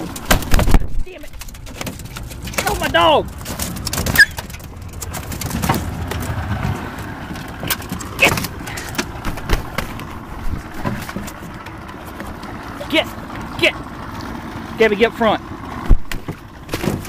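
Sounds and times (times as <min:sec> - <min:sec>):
knocks and clattering in metal boat: 0:00.0 - 0:12.4, 0:15.9 - 0:17.0.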